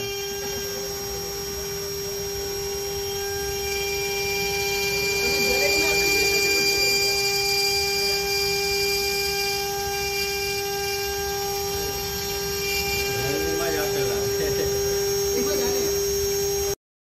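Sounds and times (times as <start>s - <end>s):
engraving spindle high whine: 0.0s - 16.8s.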